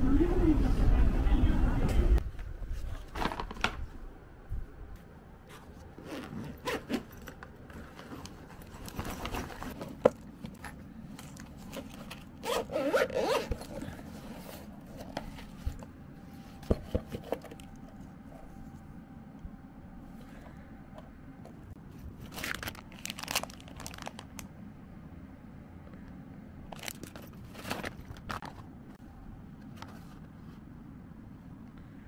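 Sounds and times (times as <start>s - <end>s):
fabric rustling: 5.4s - 17.2s
zipper pulled: 5.5s - 9.8s, 11.4s - 14.6s.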